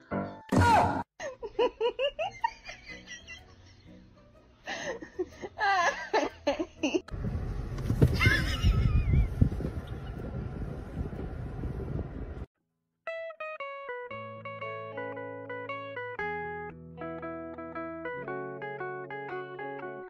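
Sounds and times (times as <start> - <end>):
people giggling: 1.2 - 7.1, 8.1 - 9.4
low rumble: 7.1 - 12.5.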